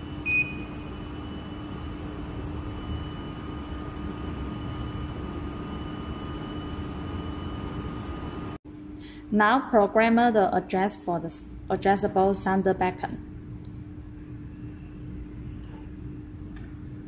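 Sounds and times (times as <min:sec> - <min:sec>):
steady low hum: 0:00.0 - 0:17.0
short high beep: 0:00.2 - 0:01.0.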